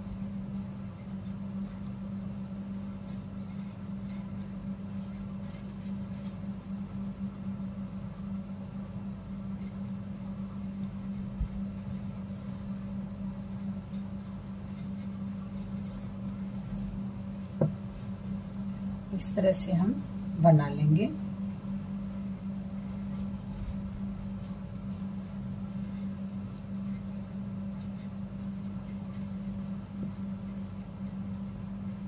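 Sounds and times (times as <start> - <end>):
low background hum: 0.0 - 32.0.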